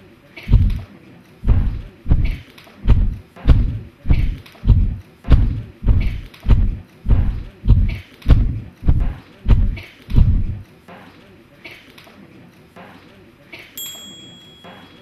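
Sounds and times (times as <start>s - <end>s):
heavy stomping footsteps: 0.5s - 0.8s, 1.4s - 10.6s.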